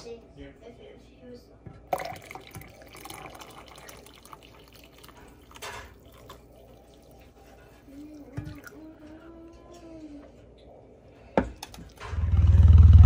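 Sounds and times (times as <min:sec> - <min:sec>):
milk pouring into mug: 0:01.8 - 0:09.0.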